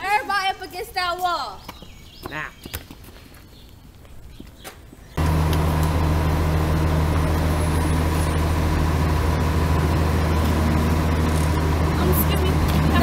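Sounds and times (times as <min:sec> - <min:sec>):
loud low mechanical drone: 0:05.2 - 0:13.0.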